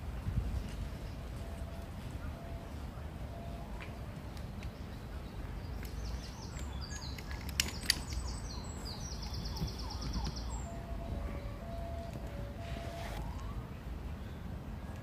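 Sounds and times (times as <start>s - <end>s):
faint steady tone: 0.0s - 4.4s, 8.6s - 15.0s
low outdoor rumble: 0.0s - 15.0s
songbird trilling: 4.9s - 13.1s.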